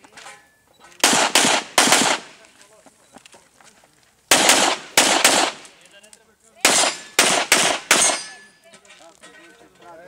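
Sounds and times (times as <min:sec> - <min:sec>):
handgun shots: 0:01.0 - 0:02.3, 0:04.3 - 0:05.7, 0:06.6 - 0:08.4.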